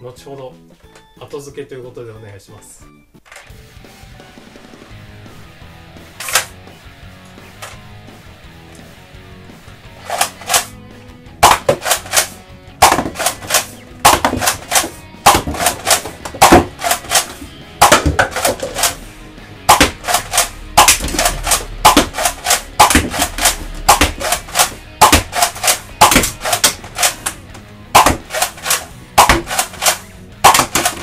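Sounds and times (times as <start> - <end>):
toy blaster firing pops: 11.4 - 19.0, 19.7 - 27.4, 28.0 - 31.0.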